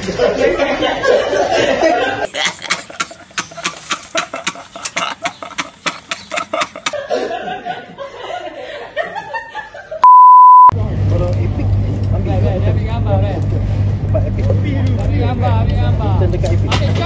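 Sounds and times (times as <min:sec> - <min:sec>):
people laughing: 0:00.0 - 0:10.0
loud steady beep: 0:10.0 - 0:10.7.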